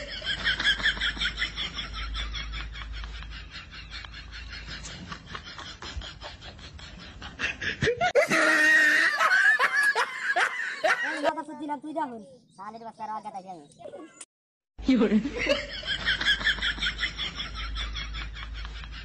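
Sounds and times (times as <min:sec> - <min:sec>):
high giggling laughter: 0:00.0 - 0:11.3, 0:15.4 - 0:19.0.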